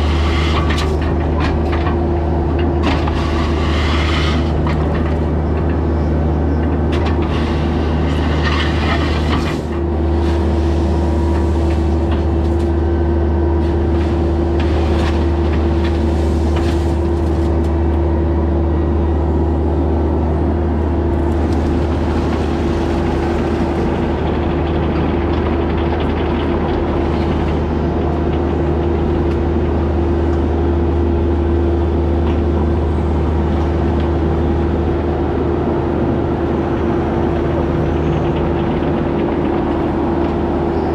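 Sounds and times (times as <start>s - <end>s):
heavy engine droning: 0.0s - 40.9s
clatters and scrapes: 6.9s - 12.7s.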